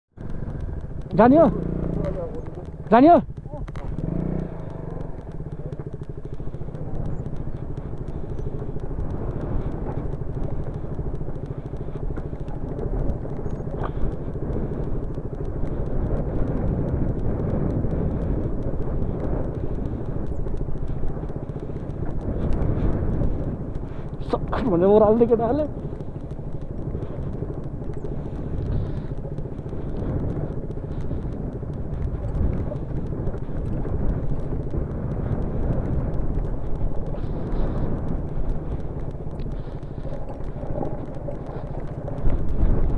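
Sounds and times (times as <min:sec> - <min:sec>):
motorcycle engine running: 0:00.1 - 0:42.9
bike rattling over gravel: 0:00.2 - 0:42.9.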